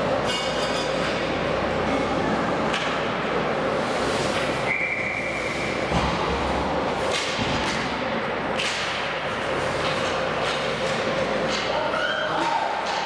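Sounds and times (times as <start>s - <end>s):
knocks and scrapes of skates and sticks: 3.7s - 8.0s, 8.6s - 13.0s.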